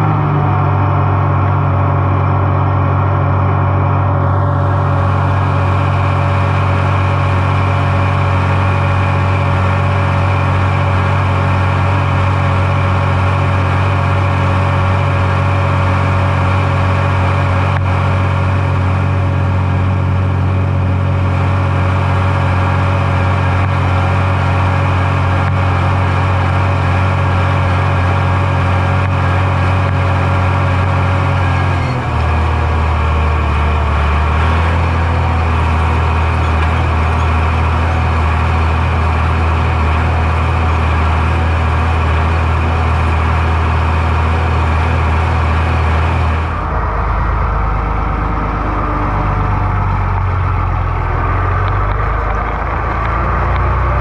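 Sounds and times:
farm machine engine running: 0:00.0 - 0:54.0.

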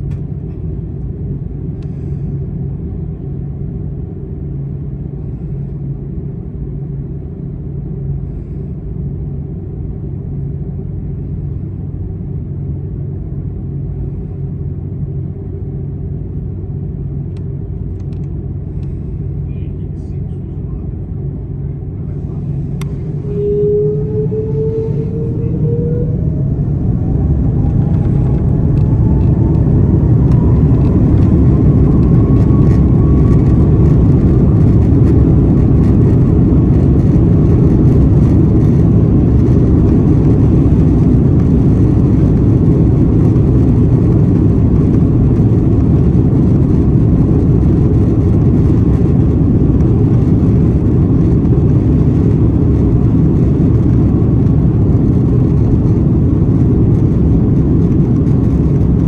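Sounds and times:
jet engines spooling up: 0:16.8 - 0:59.0.

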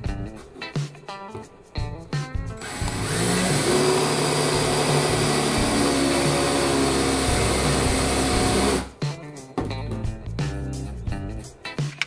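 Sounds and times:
cordless drill running under load: 0:02.6 - 0:08.9.

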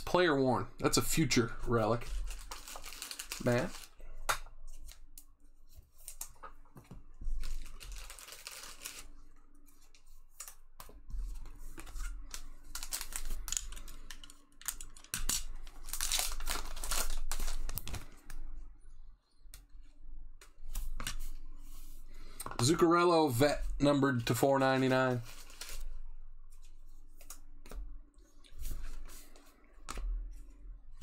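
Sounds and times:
foil wrapper tearing and crinkling: 0:02.1 - 0:04.0, 0:07.4 - 0:09.1, 0:15.2 - 0:18.0.

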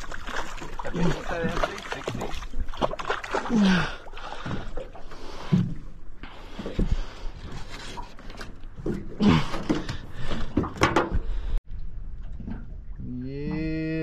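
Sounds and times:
water splashing: 0:00.0 - 0:07.2.

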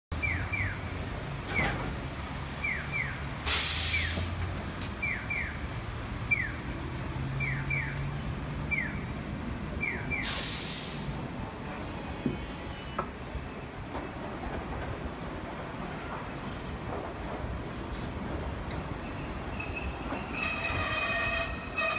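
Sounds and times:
compressed air hissing: 0:03.4 - 0:04.3, 0:10.2 - 0:11.2.

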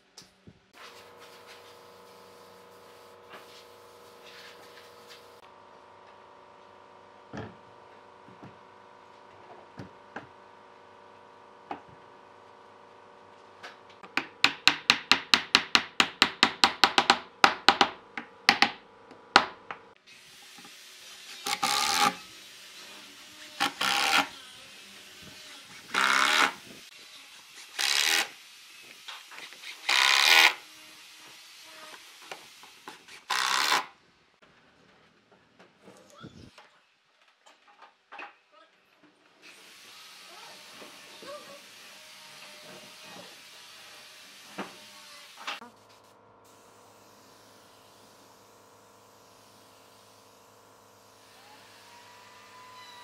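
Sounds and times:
impact driver driving screws: 0:23.6 - 0:24.3, 0:25.9 - 0:26.6, 0:29.3 - 0:30.6, 0:32.9 - 0:33.9.

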